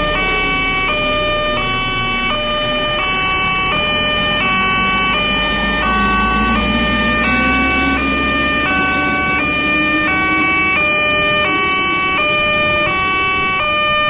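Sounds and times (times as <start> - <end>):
electronic two-tone crossing alarm: 0.0 - 14.0
low drone rising in pitch: 0.0 - 14.0.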